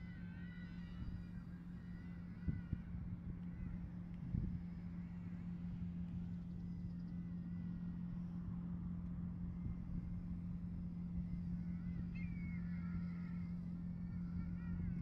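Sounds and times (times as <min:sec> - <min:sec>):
steady low drone: 0:00.0 - 0:15.0
kites calling with wavering whistles: 0:11.4 - 0:15.0.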